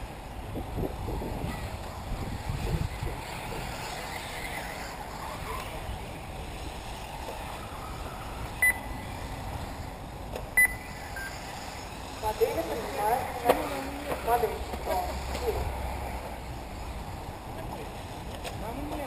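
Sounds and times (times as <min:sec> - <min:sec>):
wind noise on microphone: 0:00.0 - 0:08.7
short electronic beeps: 0:08.6 - 0:08.9, 0:10.6 - 0:11.4.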